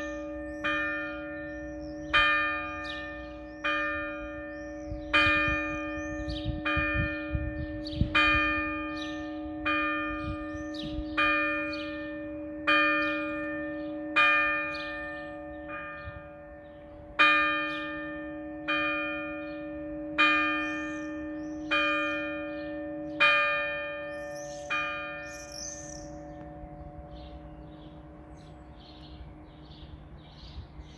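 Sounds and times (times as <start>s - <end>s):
birds chirping: 0.0s - 6.7s, 8.8s - 12.1s, 19.2s - 30.9s
church bell struck by hammer: 0.0s - 30.6s.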